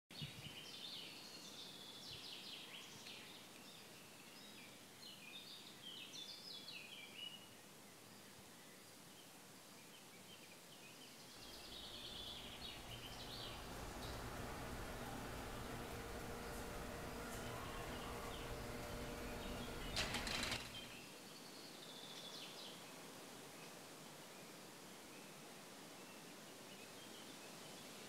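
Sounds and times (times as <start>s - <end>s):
songbirds chirping: 0.2s - 22.9s
low steady hum: 11.4s - 21.0s.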